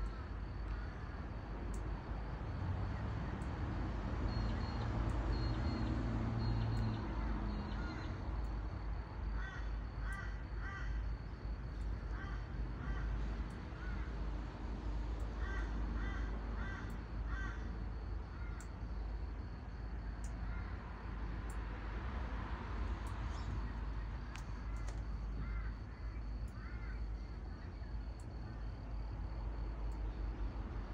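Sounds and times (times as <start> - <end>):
crow cawing: 0.0 - 1.1, 7.7 - 8.1, 9.3 - 11.2, 12.0 - 14.2, 15.3 - 18.7, 20.4 - 20.8, 24.6 - 27.9
low steady rumble: 6.6 - 30.9.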